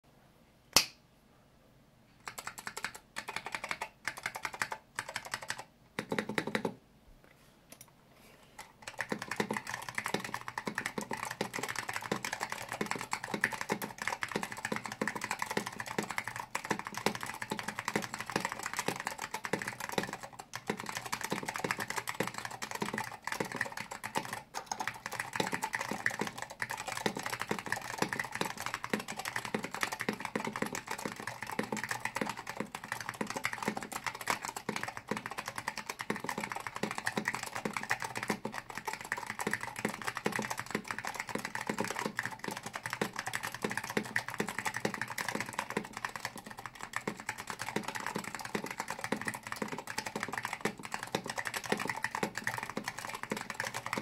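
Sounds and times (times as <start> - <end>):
sharp click: 0.7 - 1.0
mechanical keyboard typing: 2.2 - 6.8, 8.6 - 54.0.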